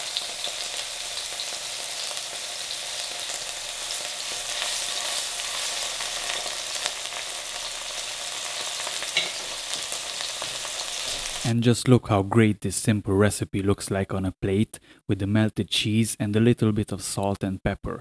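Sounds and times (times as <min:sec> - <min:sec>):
mushrooms sizzling in oil: 0:00.0 - 0:11.5.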